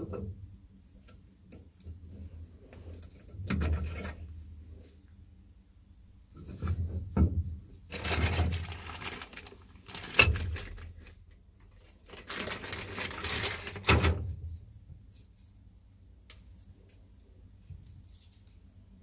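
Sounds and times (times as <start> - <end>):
rustling of gloved hands: 7.4 - 13.9.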